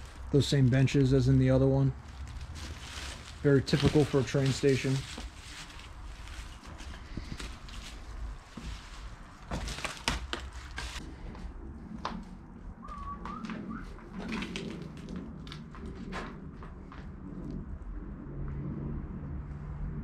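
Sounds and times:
footsteps on debris: 0:02.0 - 0:11.0.

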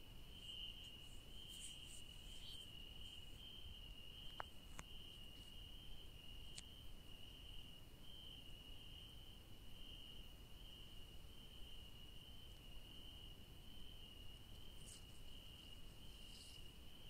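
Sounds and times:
crickets chirping: 0:00.0 - 0:17.0
faint clicks: 0:04.2 - 0:04.9.

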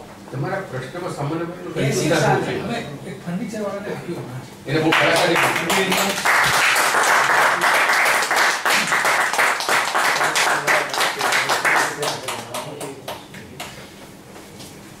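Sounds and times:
people clapping: 0:04.8 - 0:13.8.

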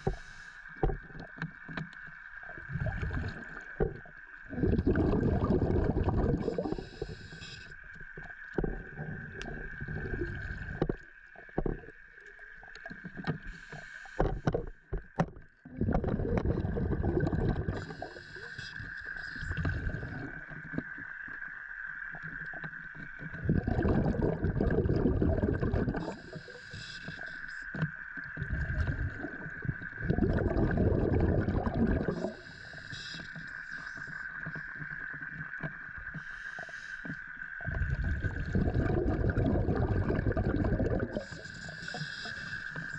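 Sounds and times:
regulator inhalation hiss: 0:00.0 - 0:00.8, 0:06.5 - 0:07.8, 0:13.4 - 0:14.2, 0:17.8 - 0:20.1, 0:26.0 - 0:27.8, 0:32.1 - 0:34.3, 0:36.2 - 0:37.4, 0:41.1 - 0:42.9
exhaled bubbles rushing: 0:02.2 - 0:07.3, 0:08.3 - 0:11.0, 0:15.6 - 0:20.7, 0:22.5 - 0:26.6, 0:28.2 - 0:32.4, 0:37.6 - 0:42.9.

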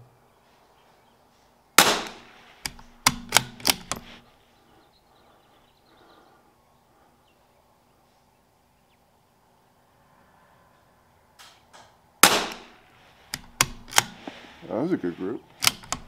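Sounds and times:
rifle shot with ringing tail: 0:01.8 - 0:02.3, 0:12.2 - 0:12.8
rifle bolt metallic clicks: 0:01.8 - 0:04.2, 0:11.4 - 0:14.3, 0:15.5 - 0:16.0.

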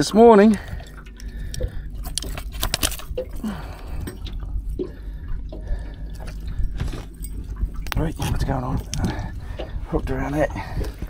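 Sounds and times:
low steady rumble: 0:00.0 - 0:11.0
clicks and knocks of pliers: 0:01.5 - 0:03.2.

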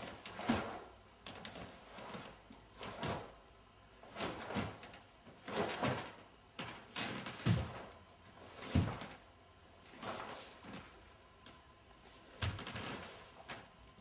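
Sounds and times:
bare feet stamping on floor: 0:07.3 - 0:07.9, 0:08.6 - 0:09.2.

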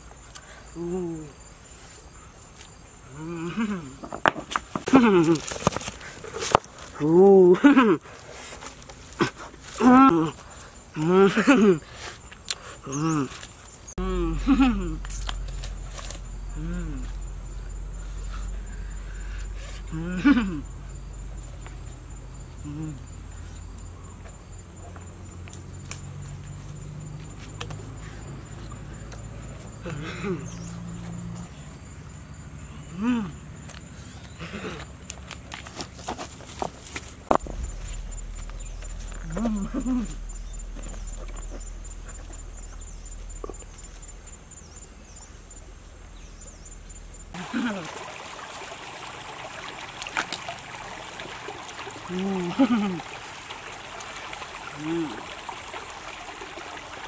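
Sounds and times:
high insect trill: 0:00.0 - 0:57.0
person humming: 0:00.8 - 0:01.4, 0:14.0 - 0:15.1, 0:16.5 - 0:17.2, 0:19.8 - 0:20.6, 0:22.6 - 0:23.0, 0:32.9 - 0:33.4
clicks and rustles of vines: 0:04.1 - 0:07.1
low rumble: 0:37.3 - 0:47.3
high chirping: 0:37.4 - 0:47.4.

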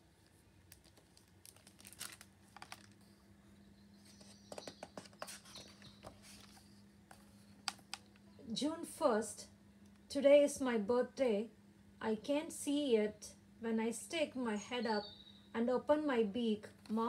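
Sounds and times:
book pages rustling: 0:00.2 - 0:03.2, 0:04.0 - 0:08.1.

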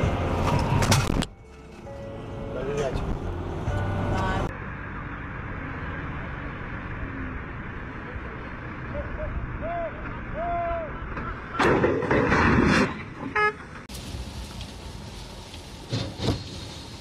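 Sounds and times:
truck crashing onto its side: 0:11.2 - 0:13.6.

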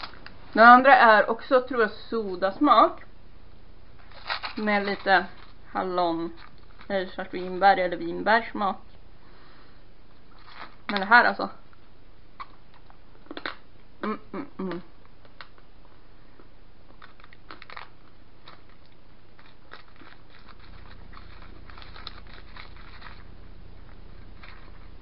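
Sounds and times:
hummed mouth sounds: 0:14.0 - 0:15.0
candy wrapper clicks and crinkles: 0:16.9 - 0:25.0.

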